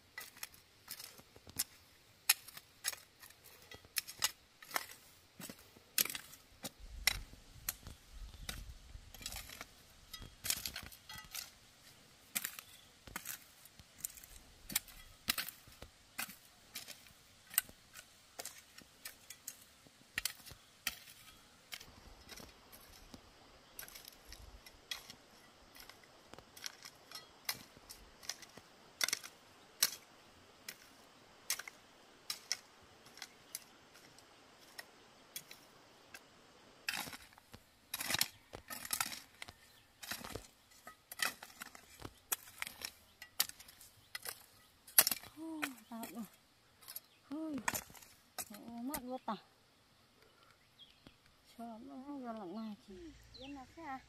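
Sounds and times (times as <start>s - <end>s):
hoe chopping into dry soil: 0.1s - 49.1s.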